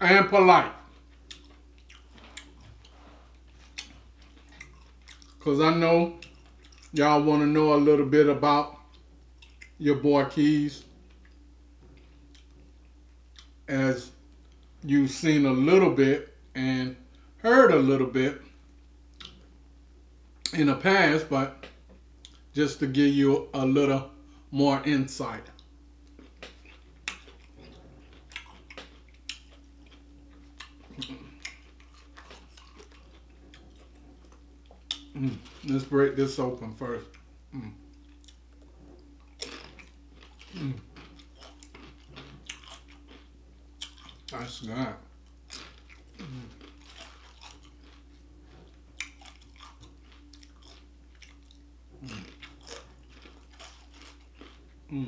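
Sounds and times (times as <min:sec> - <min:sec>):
chewing crunchy chips: 0:00.9 - 0:05.5, 0:06.1 - 0:07.0, 0:08.6 - 0:09.8, 0:25.5 - 0:55.0
mouth clicks and chewing smacks: 0:01.2 - 0:02.9, 0:08.9 - 0:09.8.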